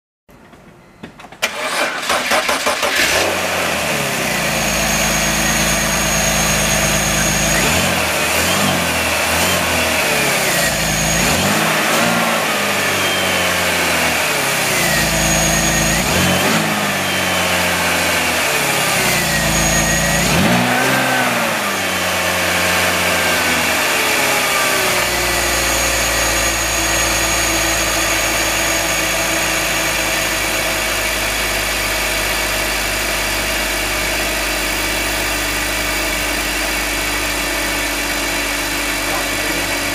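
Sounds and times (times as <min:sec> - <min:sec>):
car engine starting and revving: 0:01.4 - 0:39.9.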